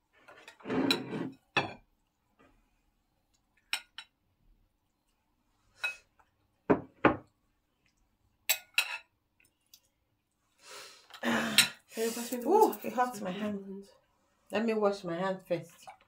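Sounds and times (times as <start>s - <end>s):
spoon and ceramic dishes clinking: 3.7s - 4.2s, 8.4s - 9.2s
plates set down on a table: 6.7s - 7.3s.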